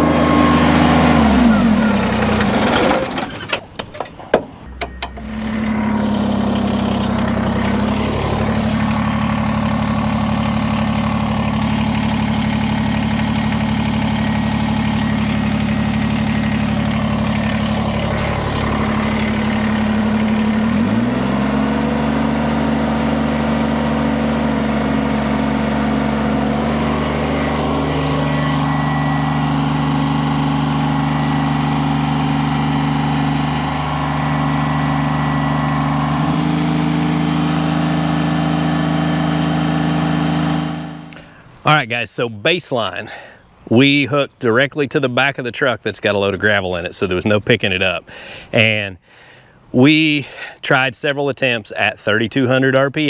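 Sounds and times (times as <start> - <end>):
tractor diesel engine: 0.0 - 53.0
sharp knocks: 2.4 - 5.3.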